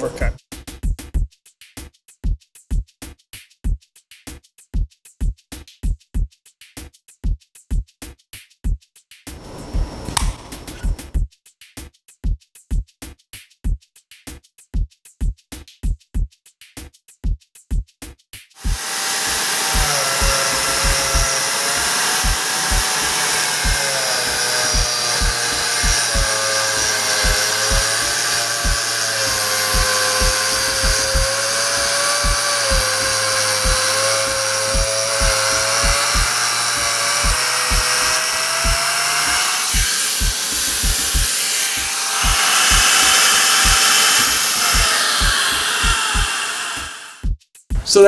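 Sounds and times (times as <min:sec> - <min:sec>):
concrete saw grinding whine: 0:09.4 - 0:11.2, 0:18.6 - 0:47.2
music beat thumping: 0:18.6 - 0:48.0.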